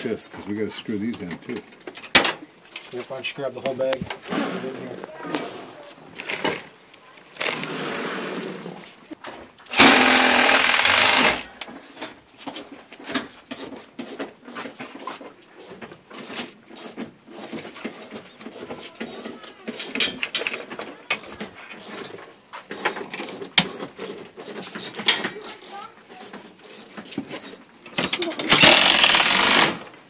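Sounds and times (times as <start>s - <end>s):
metal tools clicking and rattling: 1.1s - 3.0s, 9.8s - 29.8s.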